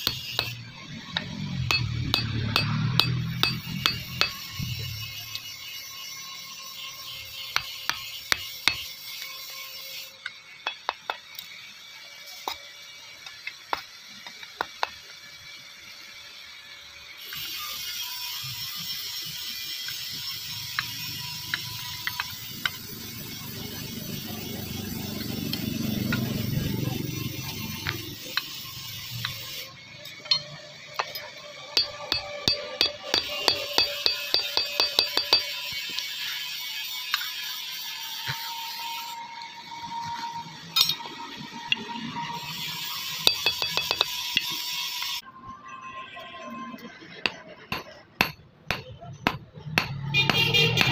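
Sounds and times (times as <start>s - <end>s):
hammer striking metal: 0.0s - 4.7s, 30.3s - 35.7s, 43.2s - 44.5s, 47.3s - 50.9s
light ringing hammer taps: 31.8s - 35.5s, 43.3s - 44.1s.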